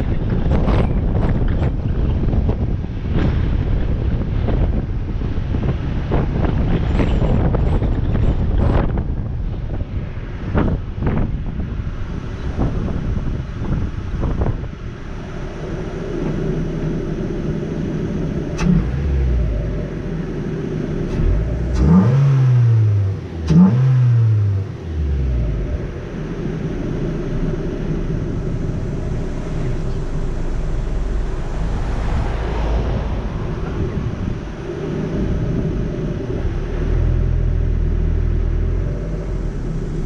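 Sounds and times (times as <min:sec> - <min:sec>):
car engine revving: 0:14.2 - 0:40.0.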